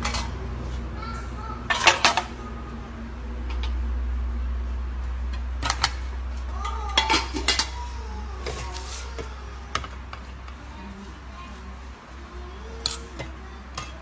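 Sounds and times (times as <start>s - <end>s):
steady low hum: 0.0s - 14.0s
metal tongs clinking on pots: 6.6s - 7.8s.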